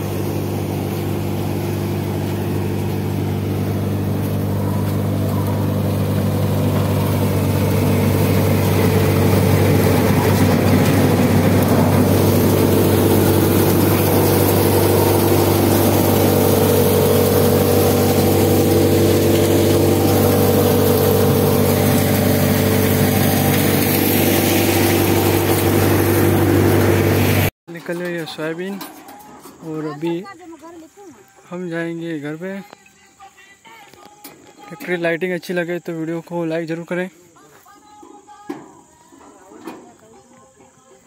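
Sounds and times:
thresher running: 0.0s - 29.0s
tractor diesel engine: 0.0s - 30.2s.

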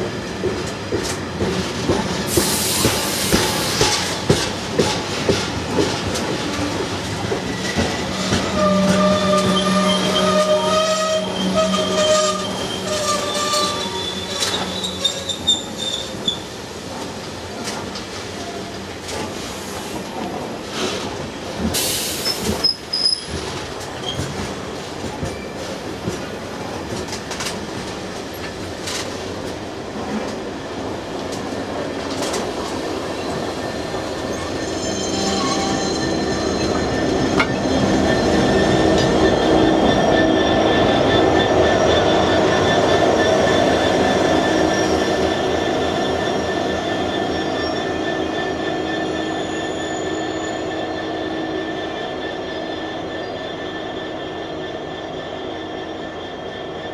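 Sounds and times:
train wheels rumbling and clicking: 0.0s - 55.3s
high wheel squeal: 7.4s - 16.5s, 21.8s - 23.4s, 33.2s - 56.9s.

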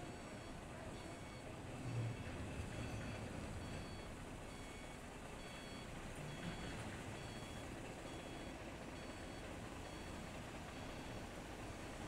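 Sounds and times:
two-pitch electronic warning beeps: 0.0s - 1.4s, 2.7s - 10.2s, 10.8s - 11.2s.

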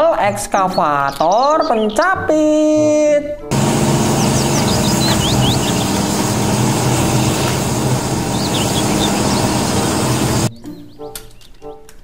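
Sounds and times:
excavator diesel engine running: 3.5s - 10.5s
bird chirps: 3.5s - 11.7s.

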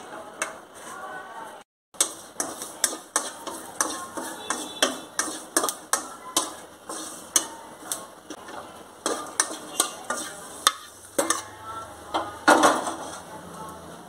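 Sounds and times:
wooden spatula scraping metal pan: 2.0s - 11.6s, 12.5s - 13.4s.

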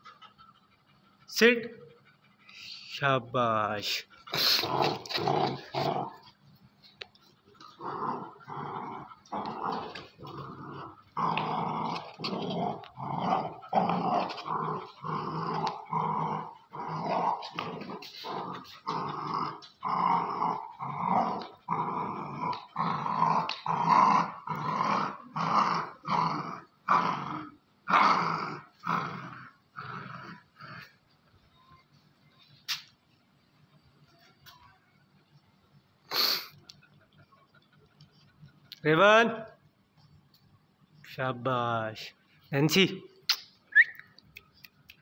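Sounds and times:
dogs growling in play: 3.9s - 31.5s.

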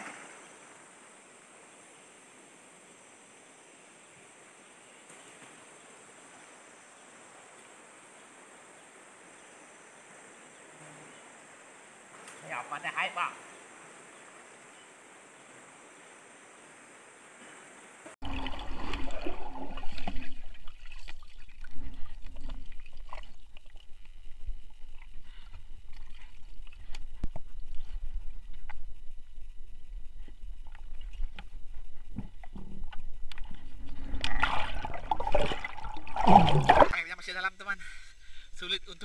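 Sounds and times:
splashes: 0.0s - 0.8s, 18.2s - 24.1s, 34.1s - 37.1s
river water sloshing and gurgling: 0.0s - 1.0s, 18.2s - 25.1s, 33.7s - 37.1s
faint hiss: 0.0s - 18.2s.

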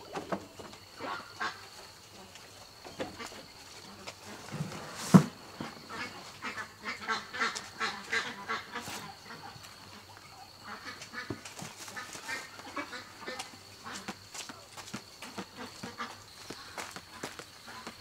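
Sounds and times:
ducks quacking: 0.9s - 2.3s, 5.6s - 14.3s, 15.3s - 18.0s.

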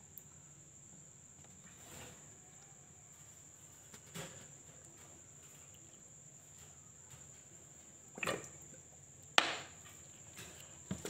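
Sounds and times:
plastic crate and bottle knocks: 9.4s - 9.7s.

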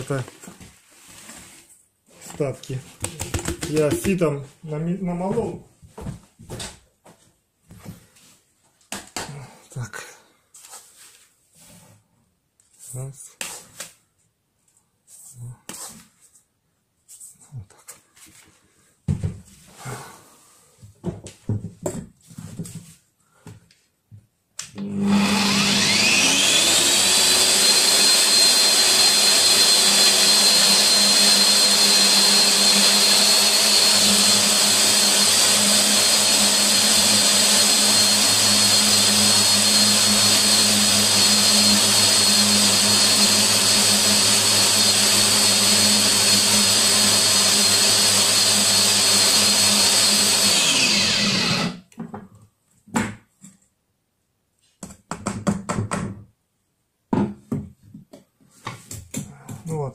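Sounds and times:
angle grinder whining: 24.7s - 51.8s.

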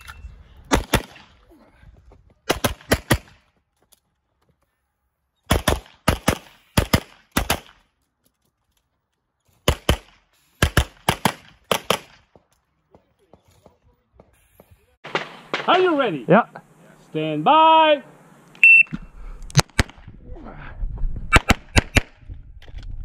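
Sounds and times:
rapid pistol fire: 0.7s - 1.3s, 2.5s - 3.4s, 5.5s - 7.8s, 9.7s - 12.2s, 15.0s - 16.0s.

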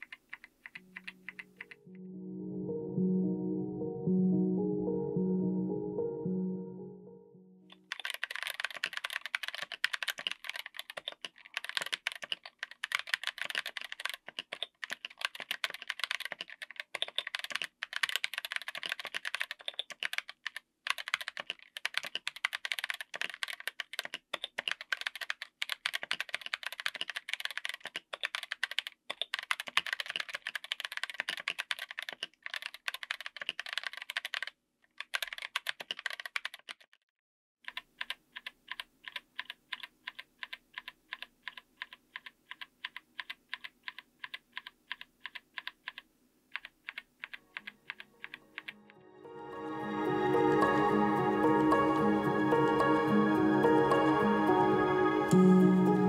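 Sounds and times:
mechanical keyboard typing: 0.0s - 1.9s, 7.7s - 36.9s, 37.6s - 48.8s.

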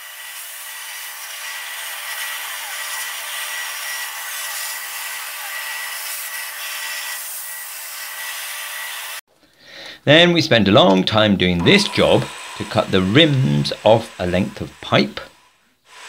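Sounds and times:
thin high whine: 11.6s - 15.7s
plasma cutter hissing: 11.6s - 16.0s.

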